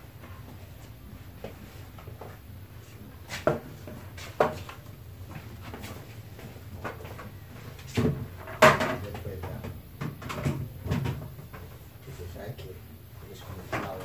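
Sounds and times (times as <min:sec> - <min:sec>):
knocks and bumps of handling: 0:03.4 - 0:11.8.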